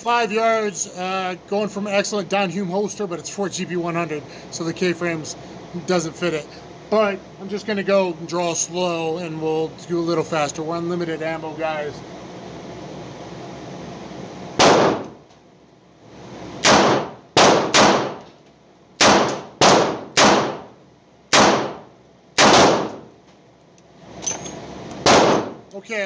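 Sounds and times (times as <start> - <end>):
revolver gunshots: 14.6 - 15.2, 16.6 - 18.2, 19.0 - 20.7, 21.3 - 23.1, 25.0 - 25.6.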